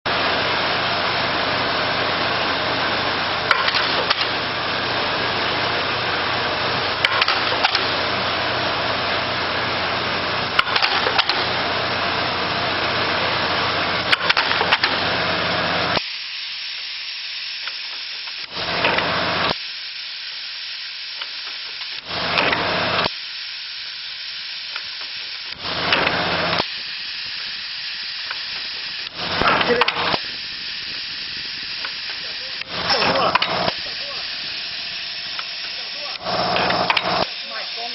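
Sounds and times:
machine hum and hiss: 0.1 - 37.9
pneumatic hiss: 3.4 - 4.6, 6.8 - 8.5, 10.5 - 11.7, 13.9 - 37.9
sharp machine click: 3.5 - 4.4, 7.0 - 7.9, 10.6 - 11.5, 14.1 - 15.0, 35.2 - 37.3.

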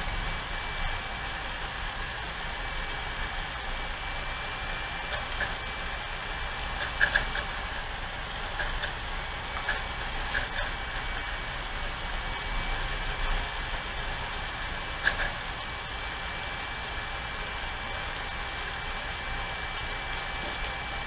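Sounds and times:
disk drive seek clicks: 4.9 - 5.8, 6.4 - 11.9, 14.6 - 15.5, 19.1 - 21.0.

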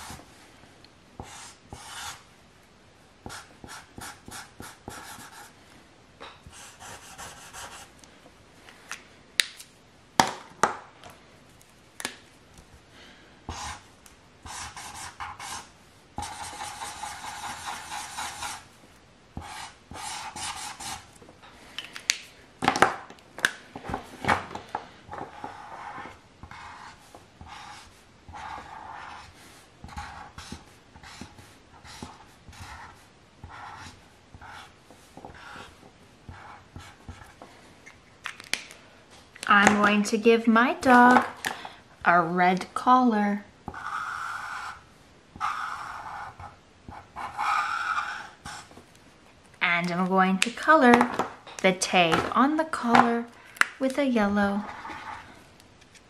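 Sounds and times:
marker scratching on paper: 1.2 - 2.2, 3.2 - 5.5, 6.5 - 7.9, 13.5 - 13.8, 14.4 - 18.7, 19.4 - 21.1, 25.1 - 37.4, 43.7 - 44.8, 45.4 - 48.7, 54.6 - 55.2.

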